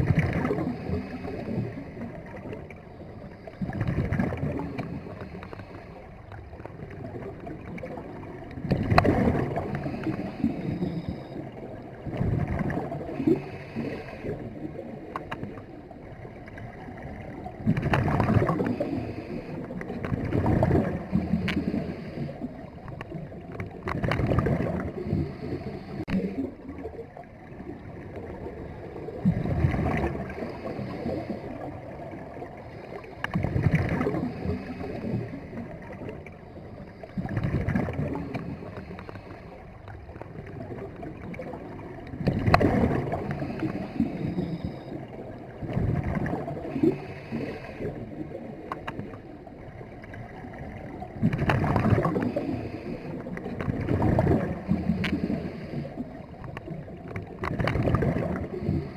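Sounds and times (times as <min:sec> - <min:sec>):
exhaled bubbles burbling underwater: 0:00.0 - 0:58.9
regulator inhale hiss: 0:00.6 - 0:02.0, 0:02.9 - 0:06.2, 0:09.6 - 0:11.6, 0:13.1 - 0:14.6, 0:18.5 - 0:20.0, 0:21.0 - 0:23.0, 0:24.9 - 0:26.6, 0:30.0 - 0:35.6, 0:36.5 - 0:39.8, 0:43.0 - 0:45.1, 0:46.6 - 0:49.0, 0:52.1 - 0:53.5, 0:54.5 - 0:56.6, 0:58.4 - 0:58.9.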